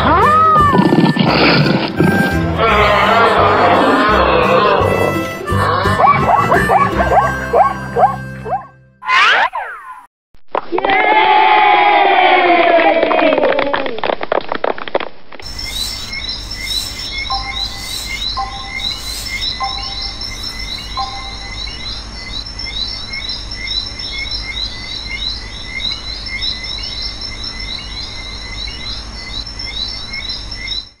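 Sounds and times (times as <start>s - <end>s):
low hum: 15.4s - 22.1s
insects trilling: 15.4s - 31.0s
small birds chirping: 15.4s - 31.0s.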